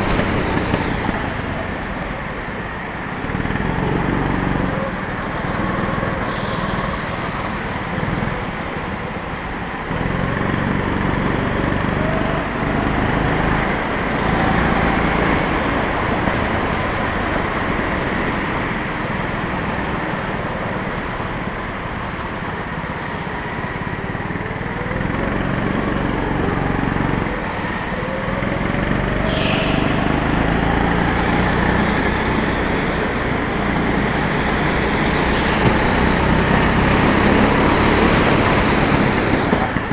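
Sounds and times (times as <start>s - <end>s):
go-kart engine revving: 0.0s - 39.9s
high squeal: 25.3s - 33.5s.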